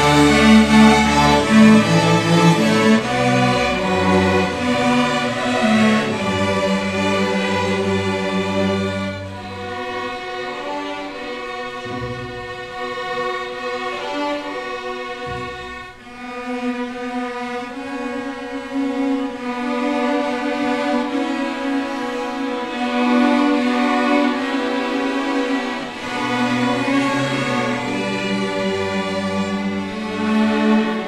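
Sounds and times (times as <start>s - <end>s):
string orchestra sustained notes: 0.0s - 31.0s.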